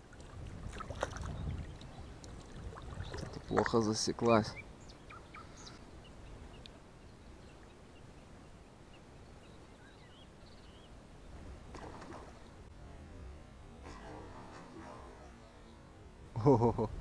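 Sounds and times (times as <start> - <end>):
wind rumble on microphone: 0.0 - 3.8
faint bird chirps: 4.3 - 12.7.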